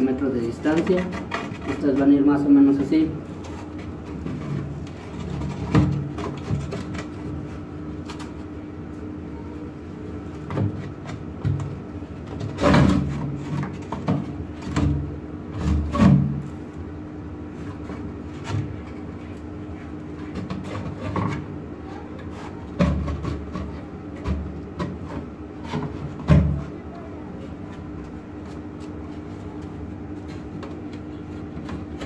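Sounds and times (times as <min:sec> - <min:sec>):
wood scraping: 0:00.0 - 0:08.5, 0:17.4 - 0:32.0.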